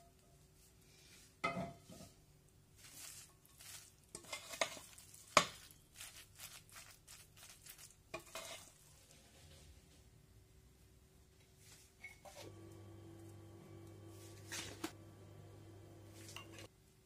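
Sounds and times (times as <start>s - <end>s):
wooden spoon scraping in glass bowl: 3.0s - 5.1s, 8.1s - 9.7s, 16.2s - 16.7s.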